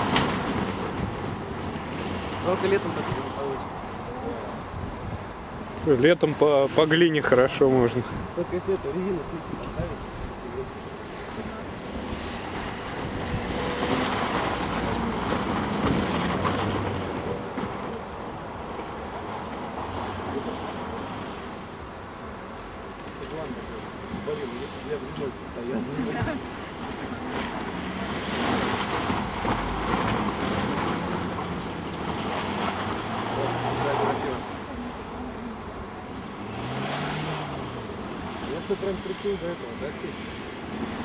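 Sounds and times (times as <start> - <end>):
car engine pulling: 6.6 - 22.0, 22.9 - 41.0
tyres churning snow: 8.8 - 21.8, 22.8 - 41.0
tyres spinning on snow: 24.1 - 34.7.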